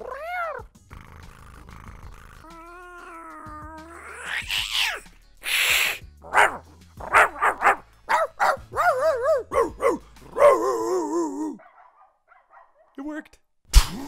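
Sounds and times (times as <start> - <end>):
man imitating cat meow and hiss: 0.0 - 6.2
man imitating dog barks: 5.8 - 12.0
man imitating dog howls: 8.7 - 11.6.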